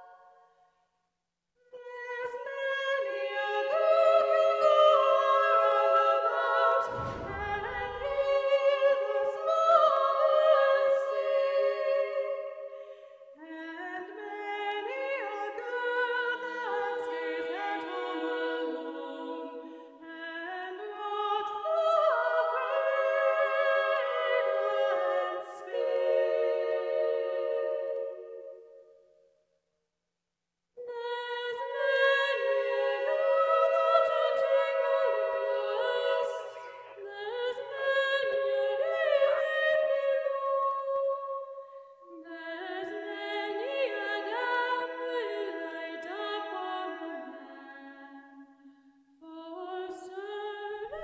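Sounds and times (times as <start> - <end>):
voices singing in harmony: 1.8 - 28.8, 30.8 - 48.7, 49.3 - 51.0
low rumble: 6.8 - 9.2.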